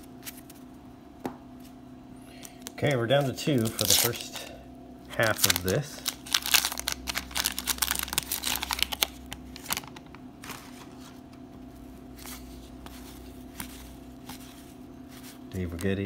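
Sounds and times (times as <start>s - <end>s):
faint steady hum: 0.0s - 16.0s
wrapper crinkling and tearing: 3.3s - 4.4s, 5.1s - 10.8s.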